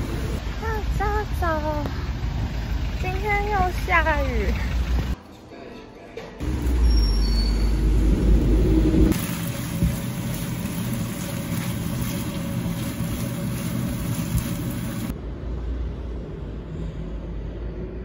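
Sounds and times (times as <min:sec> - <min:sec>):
street rumble: 0:00.0 - 0:05.3, 0:06.3 - 0:18.0
low hum: 0:06.4 - 0:18.0
meat sizzling in a frying pan: 0:09.1 - 0:15.1.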